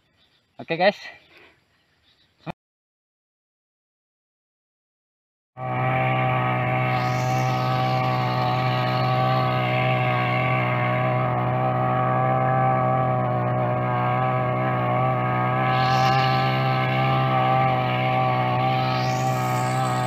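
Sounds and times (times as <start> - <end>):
brush cutter engine running: 5.6 - 20.0.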